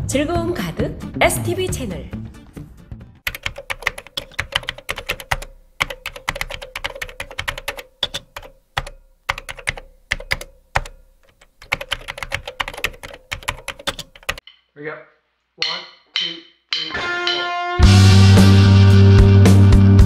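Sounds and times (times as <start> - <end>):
keyboard typing clicks: 3.3 - 14.4.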